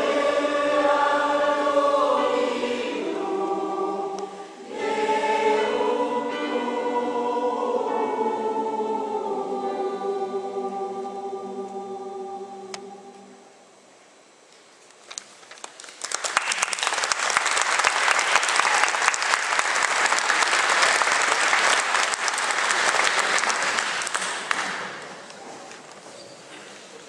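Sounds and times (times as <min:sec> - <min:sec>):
audience applauding: 0:15.2 - 0:25.3.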